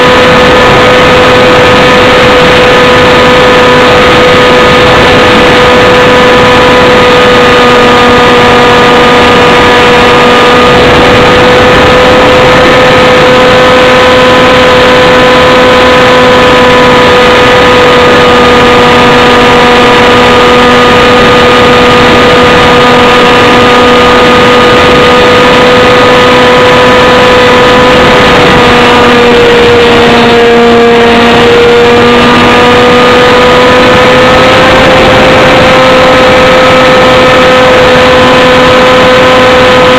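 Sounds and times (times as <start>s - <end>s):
aircraft propeller engine: 0.0s - 39.9s
wind rush: 0.0s - 39.9s.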